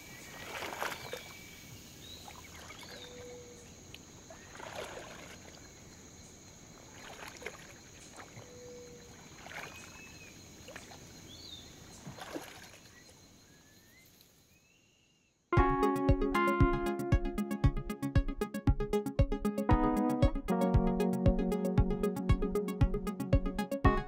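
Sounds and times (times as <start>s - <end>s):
splashes in pond water: 0.0s - 13.6s
bird chirps: 2.0s - 4.5s.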